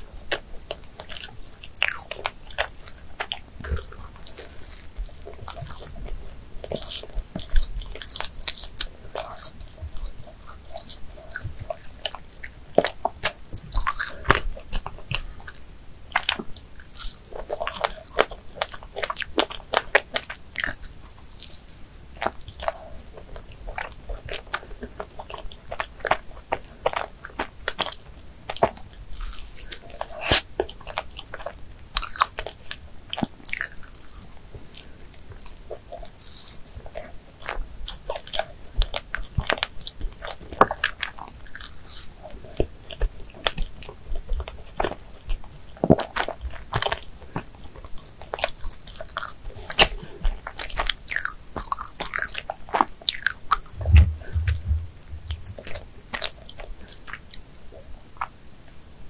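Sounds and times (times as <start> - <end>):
chewing soft doughnut: 0.0 - 59.0
sharp mouth clicks: 53.5 - 55.9.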